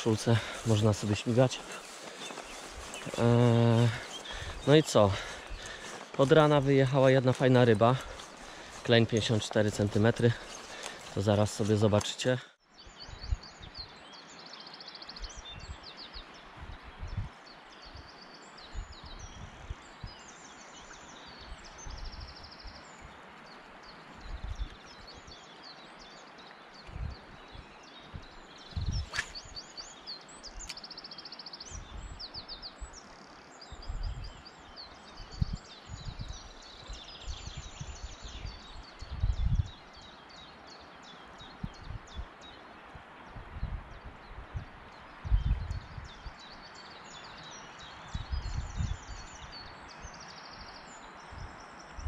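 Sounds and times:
river hiss: 0.0s - 11.8s, 29.1s - 31.6s
songbirds singing: 0.0s - 52.0s.

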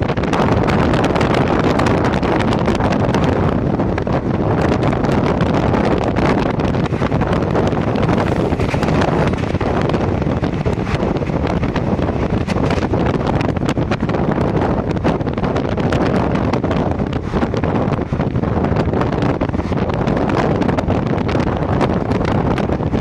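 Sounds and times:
passing train: 0.0s - 23.0s
train running noise: 0.0s - 23.0s
wind buffeting microphone: 0.0s - 23.0s.

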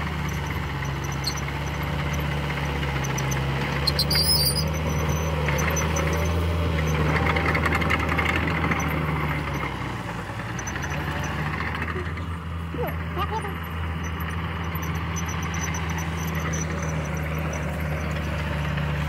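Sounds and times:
bulldozer diesel engine running: 0.0s - 19.0s
rattling crunching noise: 0.0s - 19.0s
high squeal: 3.1s - 6.3s, 14.0s - 18.6s.

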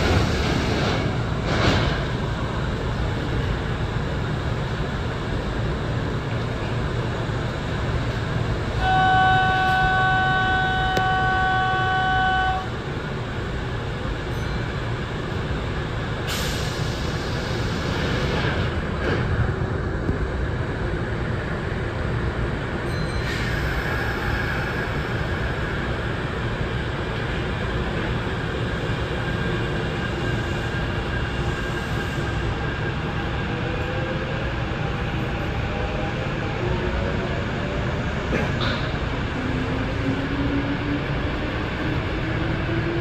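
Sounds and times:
electric train rumble: 0.0s - 43.0s
train horn chord: 8.8s - 12.7s.

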